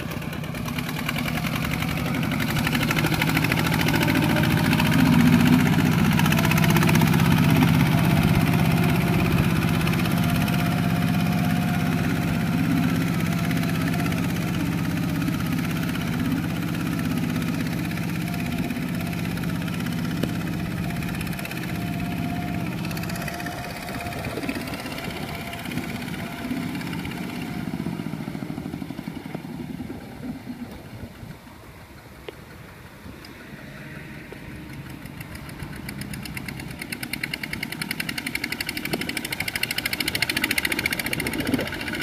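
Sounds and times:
tractor diesel engine running: 0:00.0 - 0:42.0
wheels churning through mud: 0:00.0 - 0:42.0.

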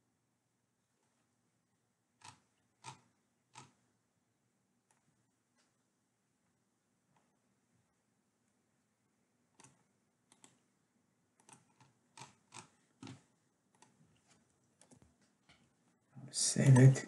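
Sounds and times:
keyboard and mouse clicks: 0:02.2 - 0:03.8, 0:09.5 - 0:10.6, 0:11.4 - 0:14.0, 0:14.8 - 0:15.7.

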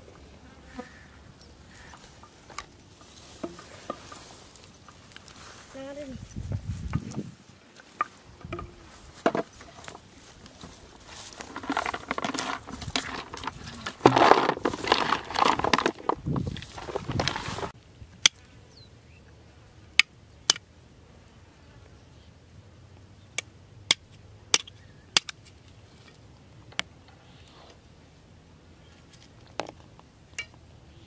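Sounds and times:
plastic basin scraping and rustling: 0:08.4 - 0:17.8.

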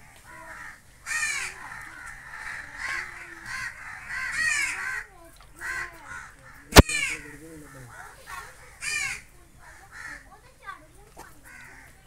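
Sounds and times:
crows cawing: 0:00.0 - 0:10.4, 0:11.4 - 0:12.0.

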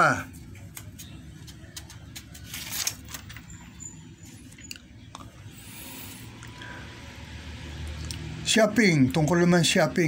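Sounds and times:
paper rustling: 0:00.3 - 0:03.7.

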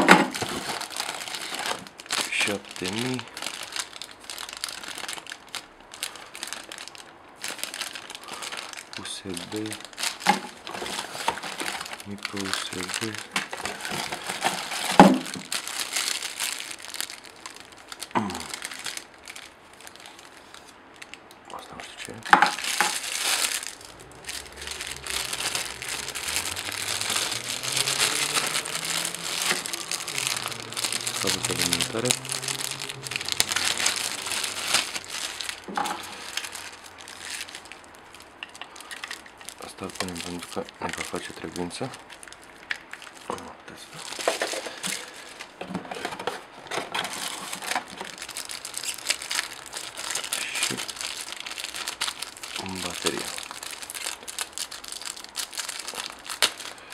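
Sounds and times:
cardboard box rustling: 0:00.0 - 0:03.2, 0:10.0 - 0:16.1
plastic bags crinkling: 0:00.0 - 0:56.9.

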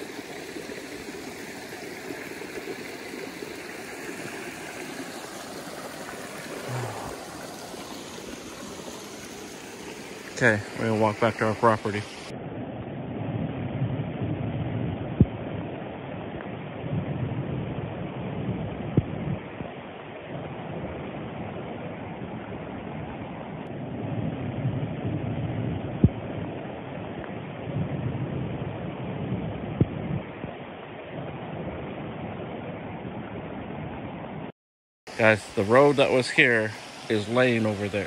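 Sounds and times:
flood water rushing: 0:00.0 - 0:12.3, 0:35.1 - 0:38.0
wind buffeting microphone: 0:05.2 - 0:34.5.

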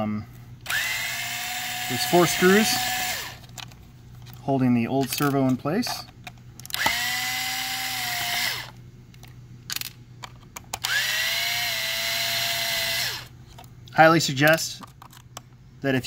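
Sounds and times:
electric screwdriver whine: 0:00.6 - 0:03.4, 0:06.7 - 0:08.8, 0:10.8 - 0:13.3.

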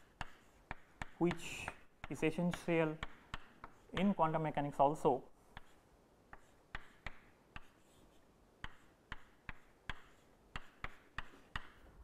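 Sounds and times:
chalk tapping and scraping: 0:00.0 - 0:12.0.

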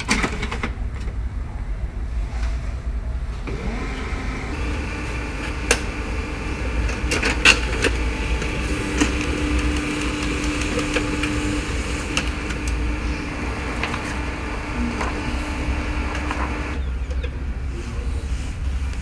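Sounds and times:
laser printer motor whirring: 0:03.5 - 0:16.8
steady printer tone: 0:03.5 - 0:16.8
printer clicks: 0:05.4 - 0:13.0, 0:15.8 - 0:17.2.

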